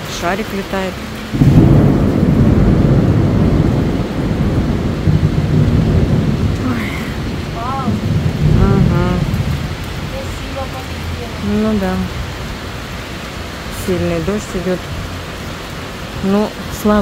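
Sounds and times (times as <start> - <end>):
heavy wind-driven rain: 0.0 - 17.0
thunder rumbling: 0.0 - 17.0.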